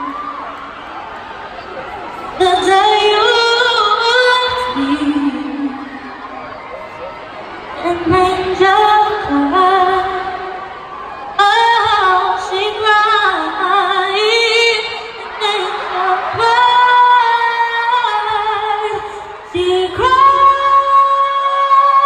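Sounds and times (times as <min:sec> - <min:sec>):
woman singing a cappella ballad: 0:02.4 - 0:05.9, 0:07.8 - 0:10.6, 0:11.4 - 0:22.0.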